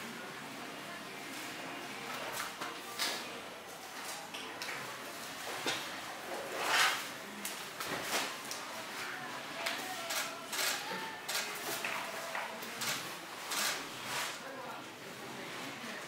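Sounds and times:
fabric scraping: 6.4 - 7.1.

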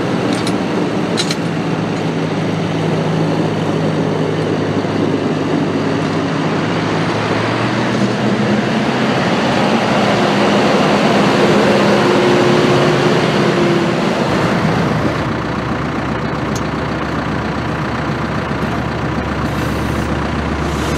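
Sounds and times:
tractor diesel engine driving past: 0.0 - 20.9
deep engine idle: 14.5 - 20.9.

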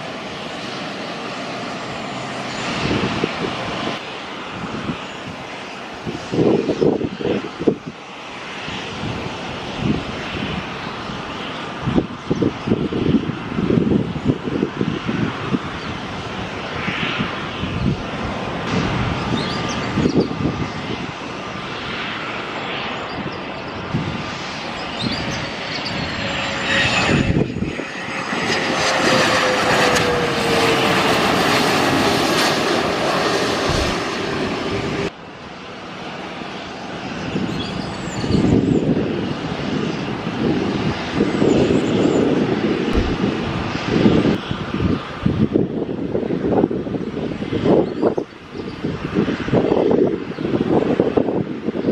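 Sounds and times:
jet engine noise: 0.0 - 51.9
falling engine whine: 17.8 - 35.2, 37.4 - 45.0.

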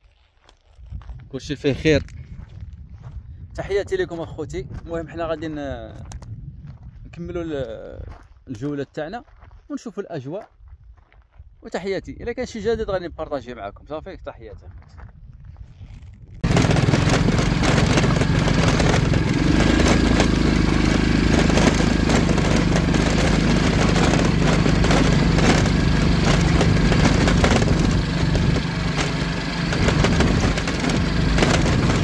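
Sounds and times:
small motorbike engine running: 16.4 - 32.0
stones and bike clattering: 16.4 - 32.0.

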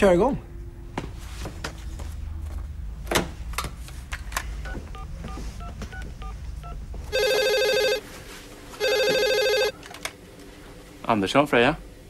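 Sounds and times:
desk telephone ringing: 7.1 - 8.1, 8.8 - 9.8.

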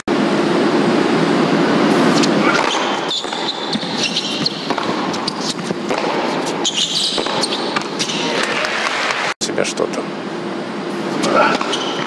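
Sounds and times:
tennis ball bouncing on court: 2.2 - 9.0, 11.5 - 12.0
arena crowd noise: 8.0 - 9.4.

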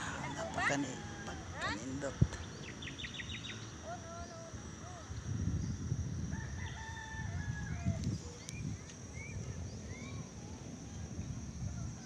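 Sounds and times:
rooster crowing: 0.0 - 1.9, 6.3 - 8.0
steady low rumble: 0.0 - 6.6.

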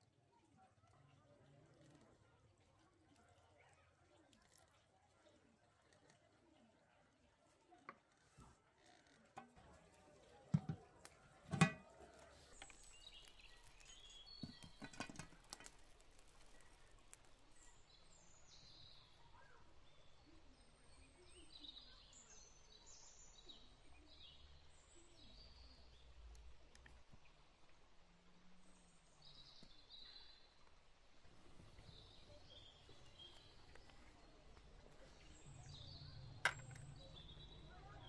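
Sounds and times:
small birds chirping: 0.0 - 38.0
metal pan and lid clanking: 11.5 - 11.9, 14.4 - 15.6.

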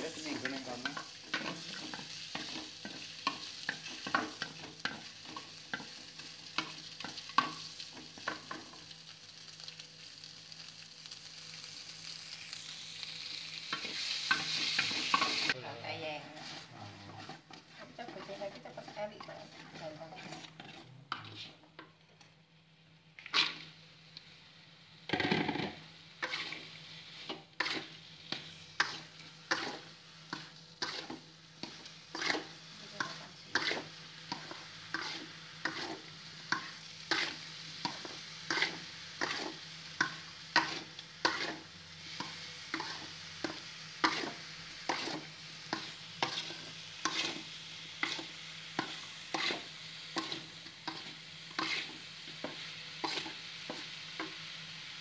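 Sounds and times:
spatula scraping a wok: 0.0 - 8.9, 13.5 - 22.0, 23.2 - 23.8, 25.1 - 54.6
food sizzling: 0.0 - 55.0.

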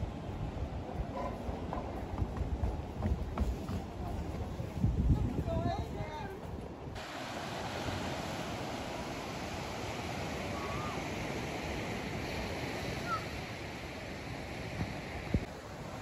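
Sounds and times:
ocean waves breaking on beach: 6.9 - 16.0.

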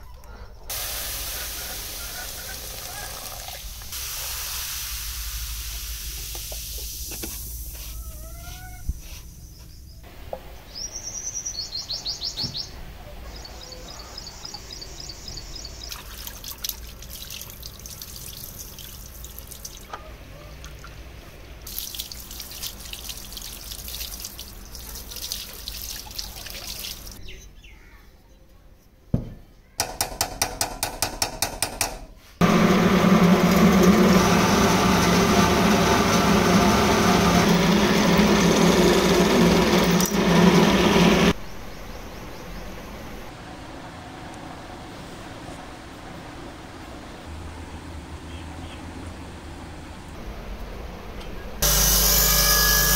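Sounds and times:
water running and splashing: 0.7 - 8.0, 15.8 - 19.9, 21.6 - 27.2
thump: 29.1 - 29.4
drill press drilling metal: 32.4 - 41.4, 51.6 - 52.9.

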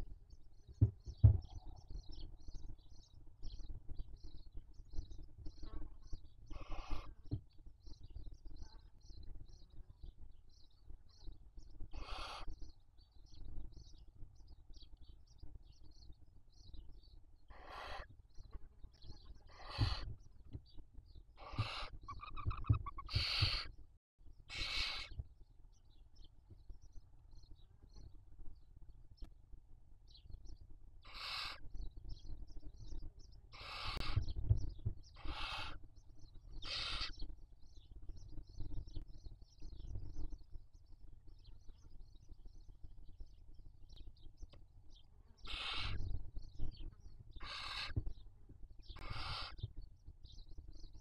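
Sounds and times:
owl chicks hissing: 6.5 - 7.2, 11.9 - 12.6, 17.5 - 18.1, 19.4 - 20.1, 21.4 - 23.7, 24.5 - 25.2, 31.0 - 31.6, 33.5 - 34.3, 35.2 - 35.9, 36.6 - 37.2, 45.4 - 46.0, 47.4 - 48.0, 49.0 - 49.6.

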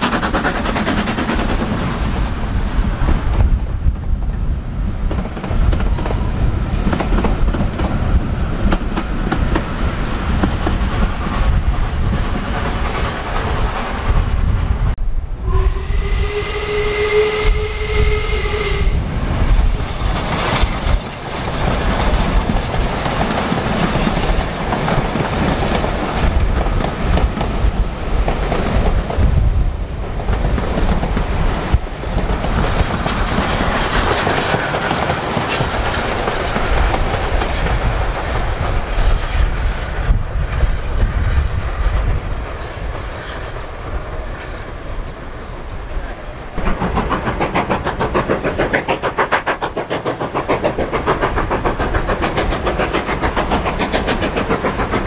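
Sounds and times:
steam train running past: 0.0 - 55.0
steam whistle blast: 15.4 - 19.2.

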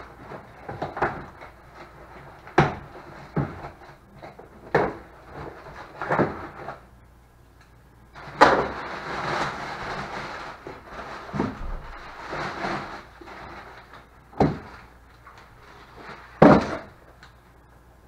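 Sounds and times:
packing paper rustling: 0.0 - 6.8, 8.2 - 17.2
cardboard crunch: 8.2 - 14.9
cardboard box knocks and thuds: 14.4 - 14.8, 16.4 - 16.9.

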